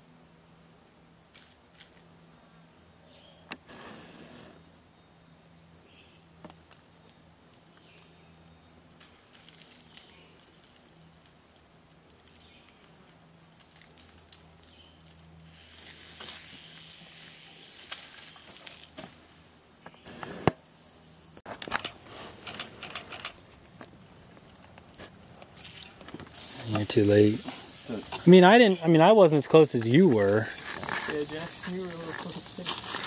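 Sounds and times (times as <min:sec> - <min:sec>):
rattlesnake rattling: 0:09.0 - 0:21.4, 0:25.2 - 0:33.0
small clicks and scuffs on rock: 0:29.8 - 0:33.0.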